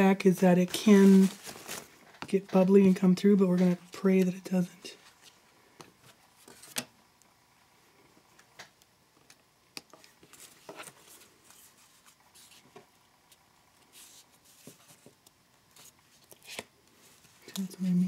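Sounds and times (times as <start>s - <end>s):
paper rustling: 0.8s - 2.0s, 10.0s - 12.8s.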